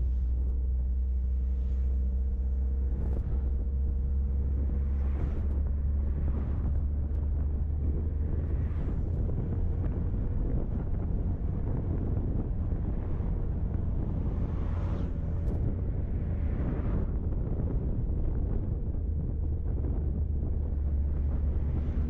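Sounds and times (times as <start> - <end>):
car engine running: 0.0 - 22.0
tyre and road noise: 0.0 - 22.0
wind noise on microphone: 0.0 - 22.0.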